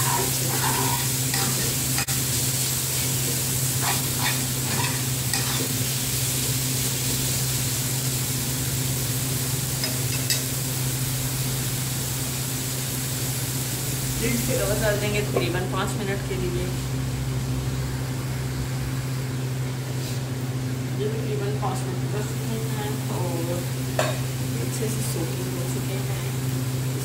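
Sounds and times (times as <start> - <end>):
metal spoon scraping pan: 0.0 - 2.2, 3.8 - 5.8
steady low hum: 0.0 - 27.0
tomatoes sizzling in frying pan: 0.0 - 27.0.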